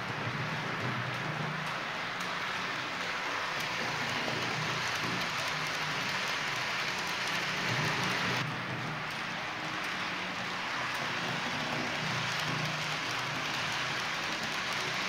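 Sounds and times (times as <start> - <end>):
model train wheels hissing on rails: 0.0 - 8.4, 9.1 - 15.0.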